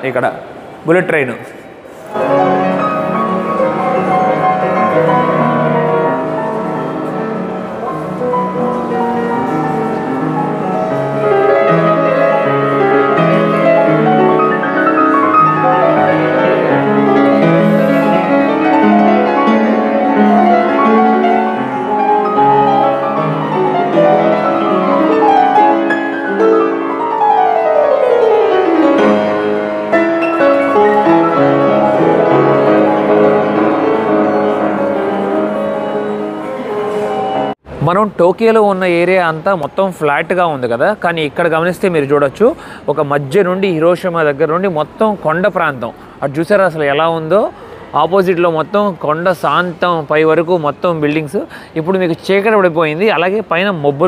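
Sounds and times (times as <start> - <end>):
fast piano piece: 2.1 - 37.9.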